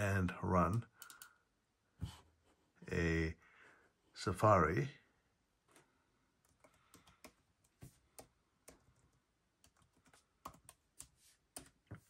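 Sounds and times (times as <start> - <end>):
laptop keyboard typing clicks: 1.0 - 1.3.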